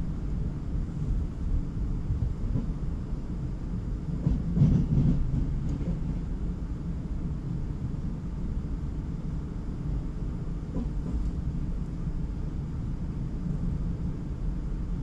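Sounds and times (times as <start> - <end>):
train rattle: 0.0 - 7.2, 9.8 - 15.0
train rumbling on rails: 0.0 - 15.0.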